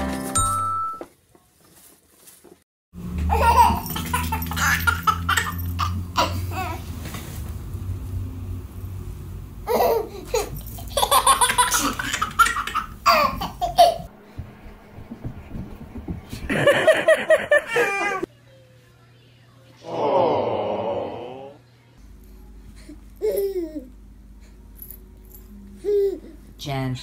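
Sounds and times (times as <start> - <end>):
baby laughing: 3.3 - 6.8, 9.7 - 14.1, 16.6 - 18.3
low steady hum: 7.5 - 19.6.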